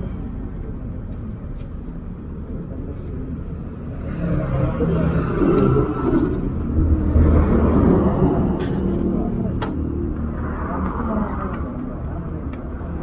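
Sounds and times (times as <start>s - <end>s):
bus passing: 0.0s - 13.0s
road traffic rumble: 0.0s - 13.0s
motorcycles passing: 3.8s - 12.6s.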